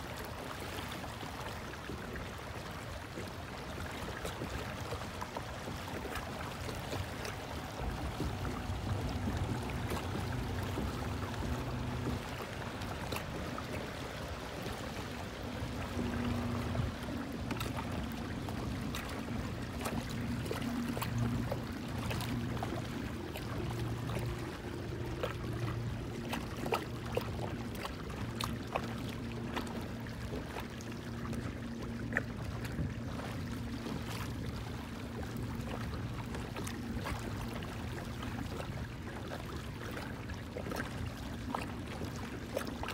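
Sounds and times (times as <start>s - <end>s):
water lapping against hull: 0.0s - 42.9s
low hum: 5.7s - 39.0s.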